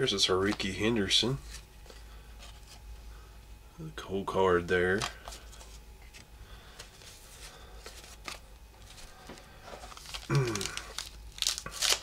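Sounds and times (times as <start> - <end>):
trading cards rustling: 4.8 - 12.0
wax paper pack crinkling: 6.9 - 12.0.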